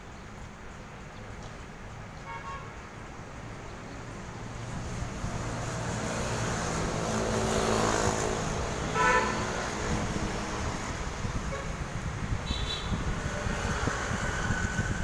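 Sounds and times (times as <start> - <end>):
car horn toot: 9.0 - 9.4, 12.4 - 13.0.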